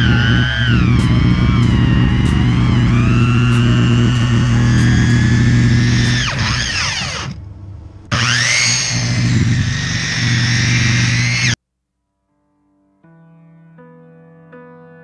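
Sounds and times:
circular saw whining: 0:00.0 - 0:11.6.

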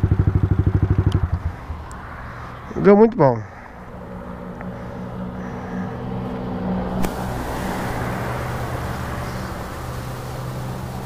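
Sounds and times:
motorcycle engine idling: 0:00.0 - 0:02.6
vehicle passing: 0:00.0 - 0:11.0.

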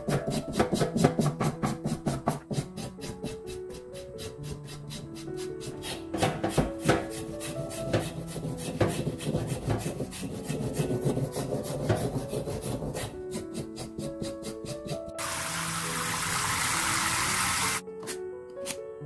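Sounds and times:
light background music: 0:00.0 - 0:19.0
knife scraping roots: 0:02.4 - 0:15.2.

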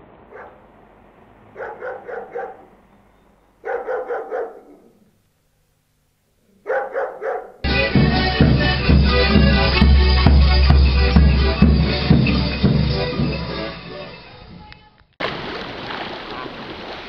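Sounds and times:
dog barking: 0:00.3 - 0:00.6, 0:01.5 - 0:02.7, 0:03.6 - 0:05.1, 0:06.5 - 0:07.7.

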